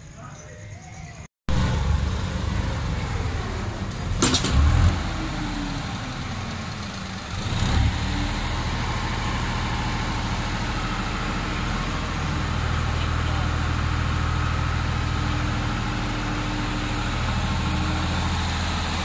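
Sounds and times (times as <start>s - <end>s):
tractor diesel engine revving: 1.5s - 19.0s.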